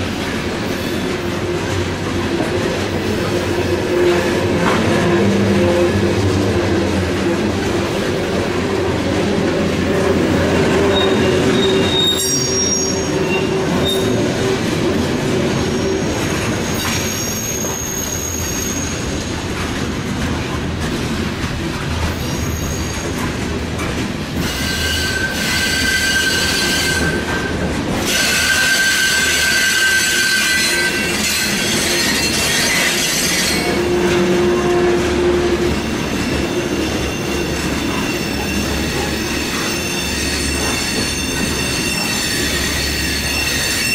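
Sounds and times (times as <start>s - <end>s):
train wheels rumbling on rail: 0.0s - 43.9s
wheel squeal: 10.8s - 14.4s, 15.6s - 19.4s, 22.1s - 23.3s, 24.4s - 43.9s.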